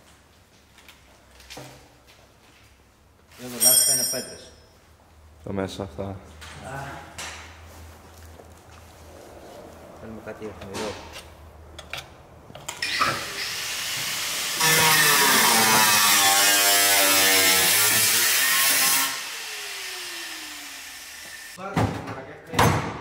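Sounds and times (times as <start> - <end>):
angle grinder cutting sheet metal: 12.8 - 21.6.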